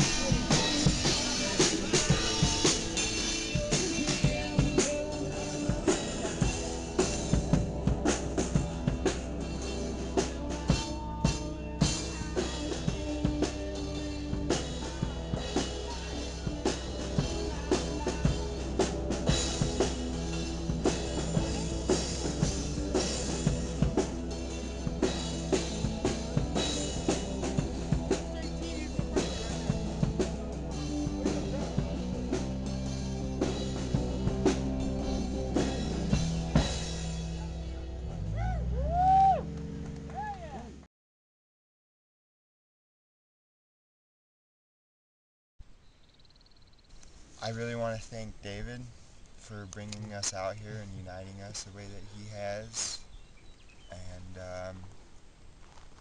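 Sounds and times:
drum kit beat: 0.0 - 39.6.

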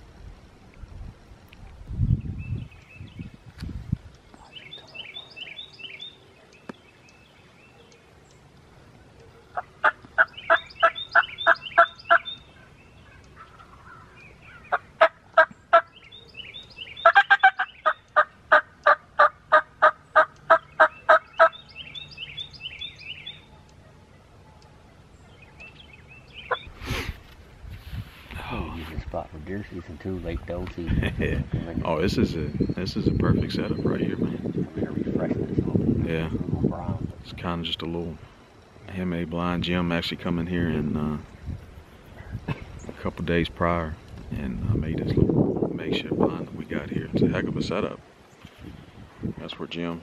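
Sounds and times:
wild turkeys yelping: 8.8 - 27.1.

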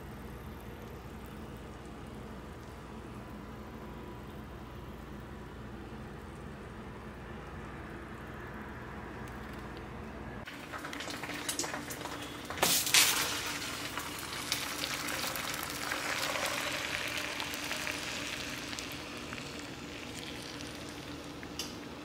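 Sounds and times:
food sizzling in hot pan: 10.5 - 21.6.

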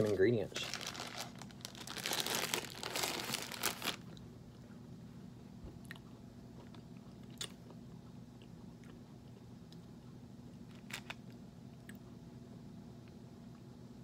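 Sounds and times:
plastic wrapper crinkling: 0.0 - 4.2.

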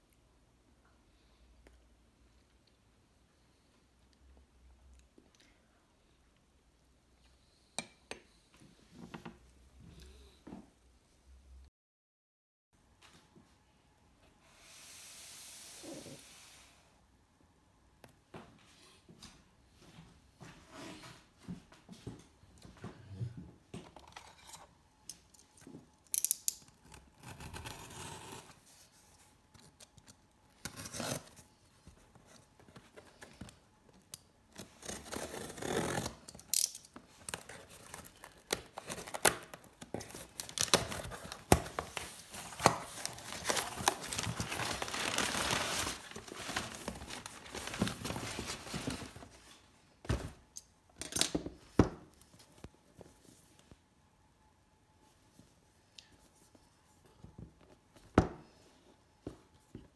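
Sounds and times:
packing tape tearing off cardboard: 34.5 - 49.2
cardboard flaps scraping and crinkling: 39.8 - 49.6.

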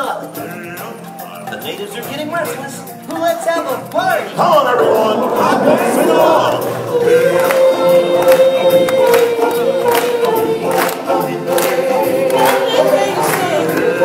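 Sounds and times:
choir and soloists singing: 4.3 - 14.0.

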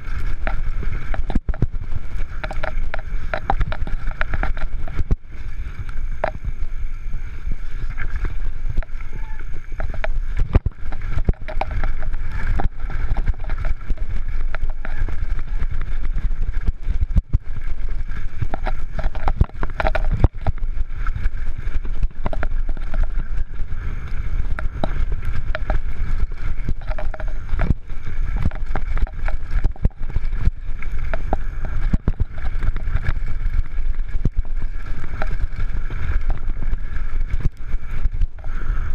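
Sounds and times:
bike rattles and knocks: 0.0 - 5.4, 8.4 - 23.5
tyre and wind noise: 0.0 - 38.9.

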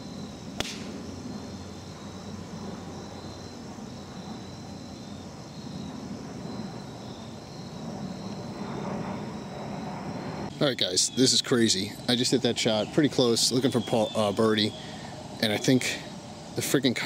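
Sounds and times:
faint insect chirring: 0.0 - 17.0
low outdoor background hum: 0.0 - 17.0
golf club striking ball: 0.6 - 1.0.

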